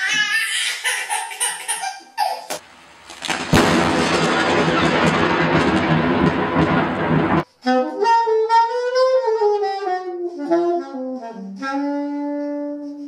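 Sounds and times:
saxophone playing: 7.6 - 13.0.

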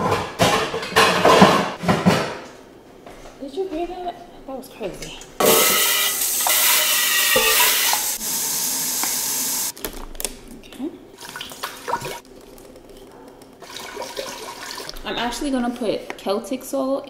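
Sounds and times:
faucet running water into pot: 5.4 - 9.7.

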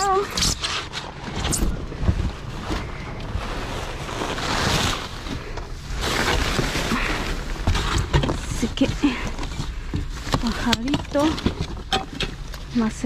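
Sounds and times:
plastic bags rustling: 0.0 - 13.0.

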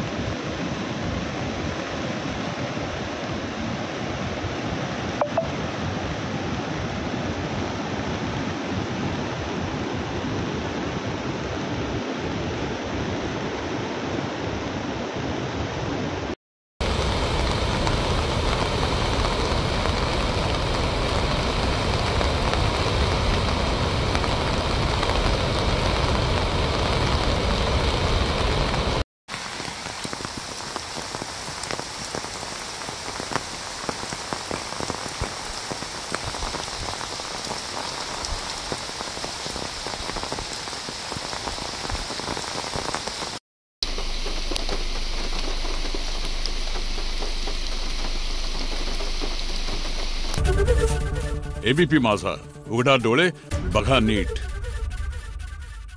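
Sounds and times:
rain pattering: 16.8 - 50.7
river floodwater rushing: 16.8 - 50.9
water pouring from spillway gates: 43.8 - 50.4.

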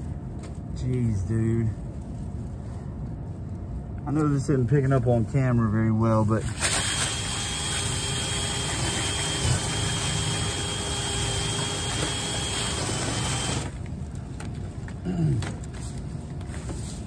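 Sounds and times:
cordless drill spinning brush: 6.6 - 13.8.

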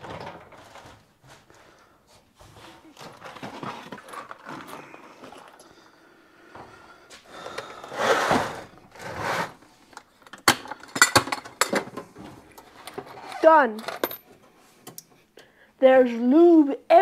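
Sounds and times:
rummaging through metal hardware: 0.0 - 1.4, 2.9 - 5.6, 9.9 - 14.4
metal hardware clattering: 10.3 - 14.3.

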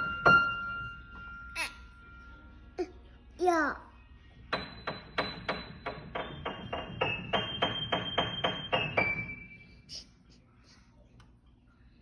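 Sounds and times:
piano notes: 0.0 - 2.8, 4.5 - 9.8.

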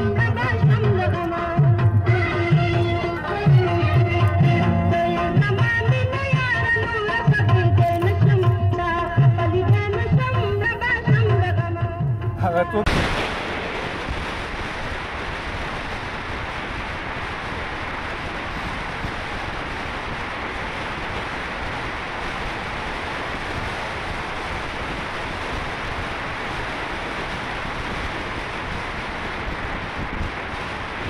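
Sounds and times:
wind rush: 12.8 - 31.0.

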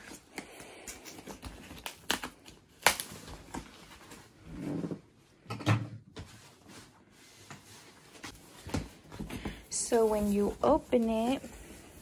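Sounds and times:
knife cutting packing tape: 0.8 - 3.4.

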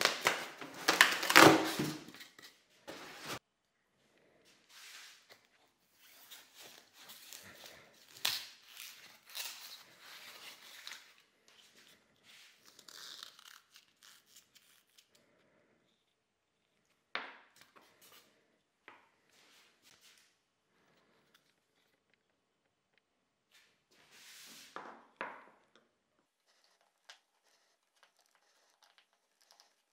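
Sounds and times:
polystyrene foam crunching and tearing: 0.0 - 2.1, 6.0 - 11.2.

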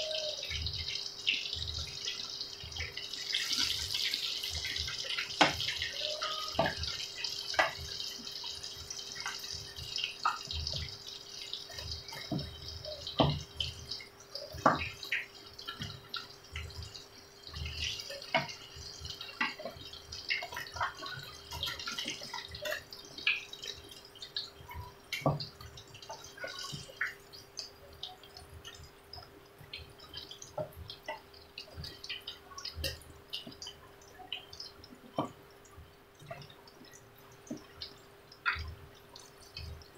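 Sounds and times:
food sizzling in hot oil: 0.0 - 39.9.

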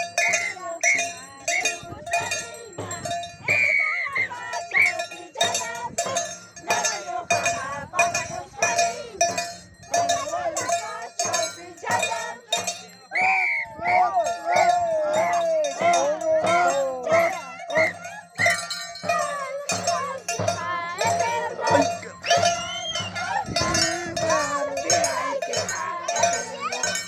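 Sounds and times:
hand drum beat: 0.0 - 13.0, 14.0 - 27.0
bell-like metal percussion: 0.0 - 27.0
voices singing high wavering lines: 10.1 - 27.0.

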